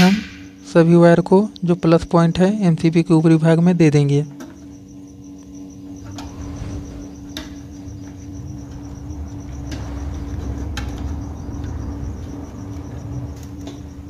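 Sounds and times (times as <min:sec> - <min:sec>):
cricket chirping: 0:00.0 - 0:14.0
steady hum: 0:00.0 - 0:14.0
low rumble: 0:05.9 - 0:14.0.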